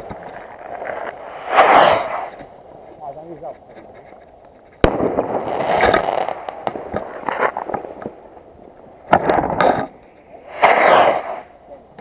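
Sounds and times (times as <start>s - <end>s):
fireworks bang: 0.0s - 2.6s, 4.8s - 8.3s, 9.0s - 12.0s
crackling hiss and pops: 0.0s - 12.0s.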